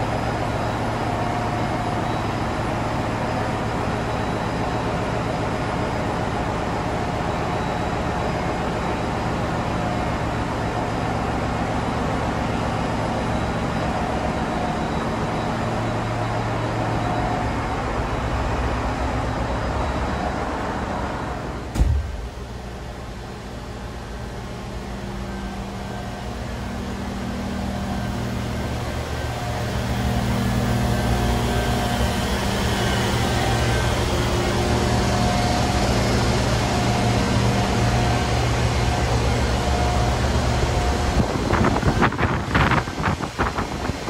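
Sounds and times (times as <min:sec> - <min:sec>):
engine room machinery humming: 0:00.0 - 0:44.0
single thump: 0:21.7 - 0:22.3.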